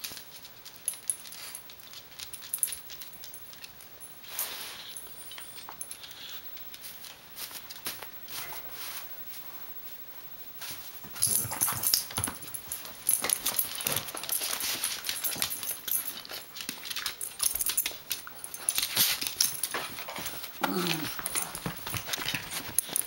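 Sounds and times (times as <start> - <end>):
dogs scuffling: 0.0 - 23.0
dog vocal sounds: 20.0 - 23.0.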